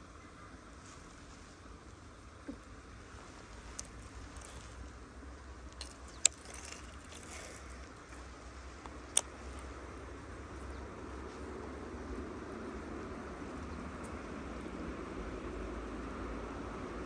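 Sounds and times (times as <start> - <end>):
steady low rumble: 0.0 - 17.0
fishing reel clicks: 5.7 - 9.7.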